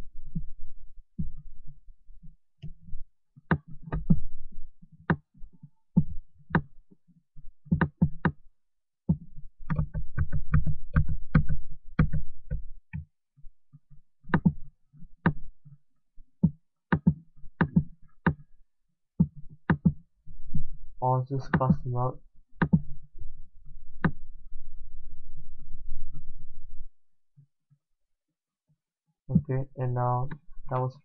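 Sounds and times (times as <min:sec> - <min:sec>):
taps on tablet computer: 0:07.7 - 0:08.4, 0:09.1 - 0:13.1, 0:14.3 - 0:14.6, 0:16.4 - 0:18.4, 0:19.2 - 0:20.0, 0:22.6 - 0:22.8.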